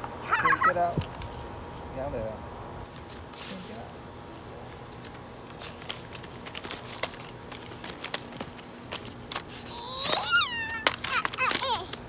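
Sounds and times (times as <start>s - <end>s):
child whining squeal: 9.7s - 10.8s.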